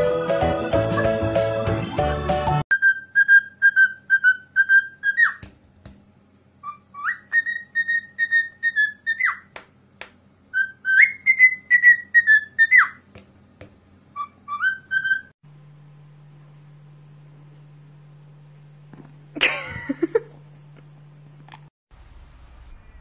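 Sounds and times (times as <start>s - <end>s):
cockatiel whistling: 2.7s - 5.4s, 6.6s - 9.5s, 10.5s - 13.0s, 14.2s - 15.3s.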